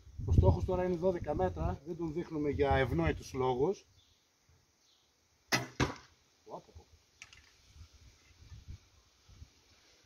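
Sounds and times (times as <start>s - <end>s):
arrow hitting target: 5.5s - 6.2s.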